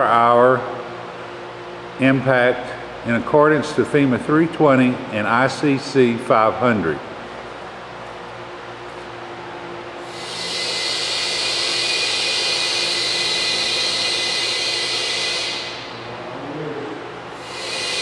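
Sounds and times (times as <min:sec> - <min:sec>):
compressed air hissing: 0:10.0 - 0:16.0, 0:17.3 - 0:18.0.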